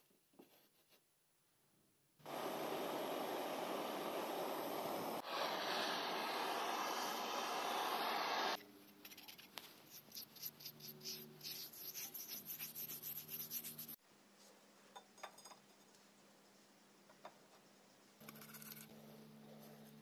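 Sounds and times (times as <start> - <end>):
blowtorch hissing: 2.2 - 8.6
brush scrubbing steel bar: 9.1 - 14.0.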